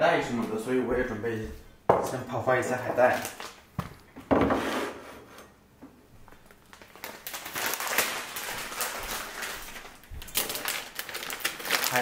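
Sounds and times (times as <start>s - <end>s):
packaging crinkling: 3.0s - 3.6s, 6.3s - 12.0s.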